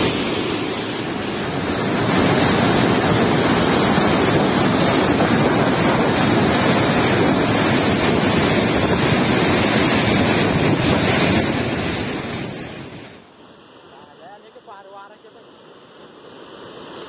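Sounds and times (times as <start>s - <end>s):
wind buffeting microphone: 0.0s - 13.2s.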